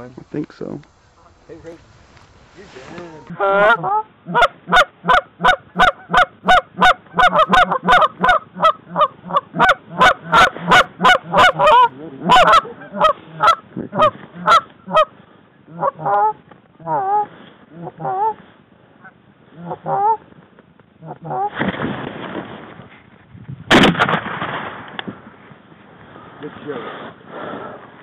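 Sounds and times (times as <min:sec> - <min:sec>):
goose call honks and clucks: 0:03.3 - 0:18.4, 0:19.0 - 0:20.3, 0:21.0 - 0:21.6.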